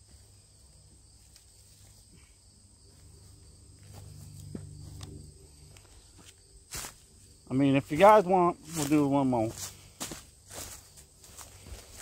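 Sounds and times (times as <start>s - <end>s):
insects droning: 0.0s - 12.0s
footsteps on dry leaves: 5.6s - 12.0s.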